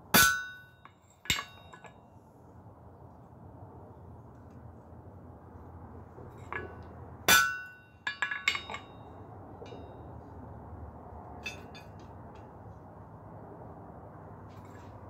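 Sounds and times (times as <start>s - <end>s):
steel clinking on anvil: 0.2s - 2.0s, 6.4s - 9.0s, 11.4s - 12.0s.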